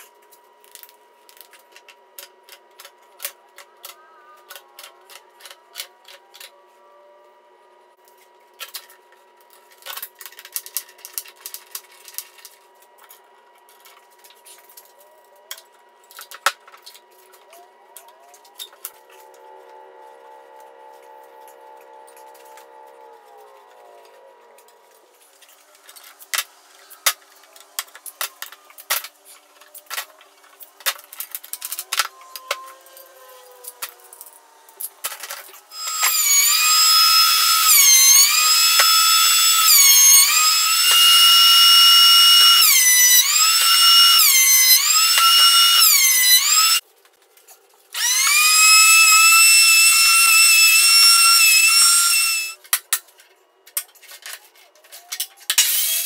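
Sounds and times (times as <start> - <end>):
thickness planer whining: 17.2 - 46.8, 48.0 - 52.6.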